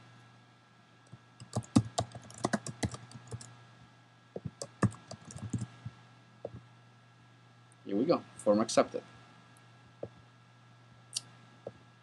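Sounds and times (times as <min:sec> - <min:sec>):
typing on computer keyboard: 0:01.4 - 0:03.5, 0:04.4 - 0:05.7.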